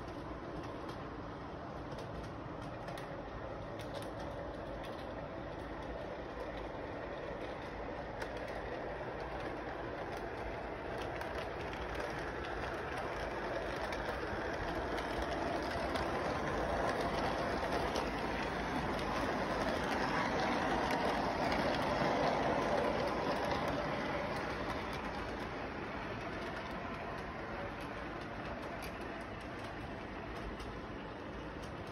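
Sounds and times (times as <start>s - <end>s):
model train running on track: 0.0s - 31.9s.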